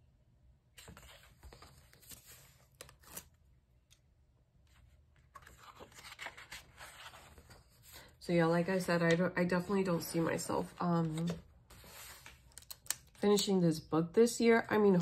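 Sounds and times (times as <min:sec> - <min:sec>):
paper pages rustling: 0:00.8 - 0:03.4, 0:04.7 - 0:13.5.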